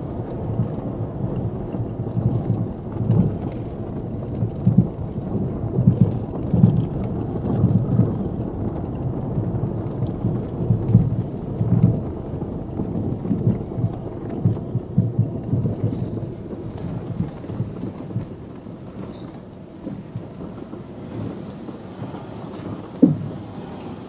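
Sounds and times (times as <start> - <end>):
car rumbling on dirt road: 0.0 - 24.0
tyres and suspension thumping: 22.9 - 23.7.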